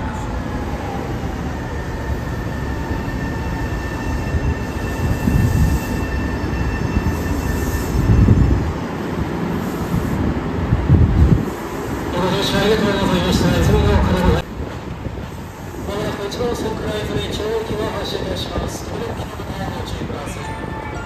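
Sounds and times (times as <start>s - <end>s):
train high whine: 0.0s - 16.8s
electric train rumbling: 0.0s - 21.0s.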